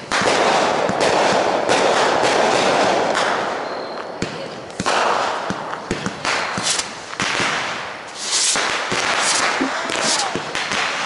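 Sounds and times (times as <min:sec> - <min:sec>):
fireworks popping and banging: 0:00.0 - 0:11.0
fireworks hissing: 0:06.4 - 0:07.2, 0:07.9 - 0:10.9.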